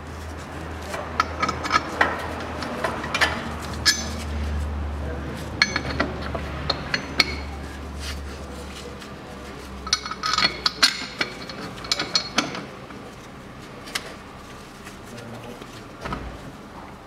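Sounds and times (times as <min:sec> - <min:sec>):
tools clinking on steel: 0:01.2 - 0:04.3, 0:05.6 - 0:07.6, 0:09.9 - 0:12.7.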